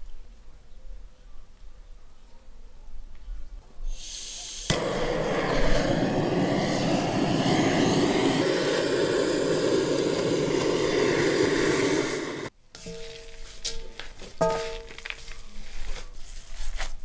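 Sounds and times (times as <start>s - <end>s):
blow torch flame rushing: 3.9s - 12.5s
gas hissing: 3.9s - 12.5s
torch igniter click: 4.6s - 12.5s.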